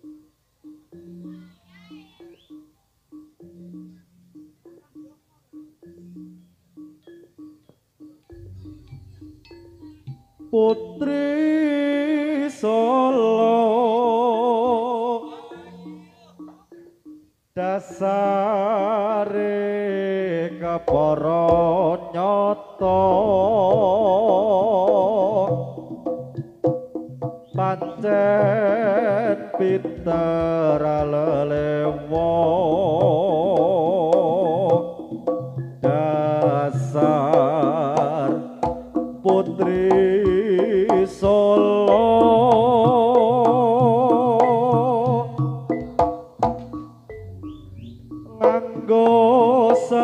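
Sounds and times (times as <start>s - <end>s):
wavering melody line: 0.0s - 12.4s, 14.1s - 19.0s, 27.5s - 50.0s
struck percussion: 8.2s - 11.4s, 20.6s - 22.1s, 22.8s - 50.0s
drum strokes: 8.3s - 11.4s, 20.6s - 22.0s, 22.9s - 50.0s.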